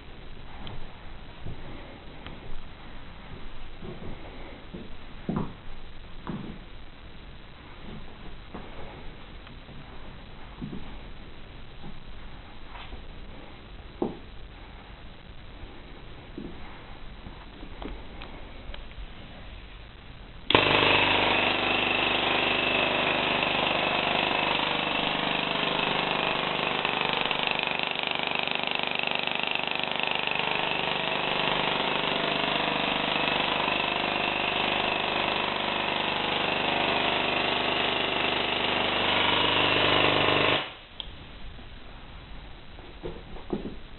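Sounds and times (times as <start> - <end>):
electrical hum: 0.0 - 27.5.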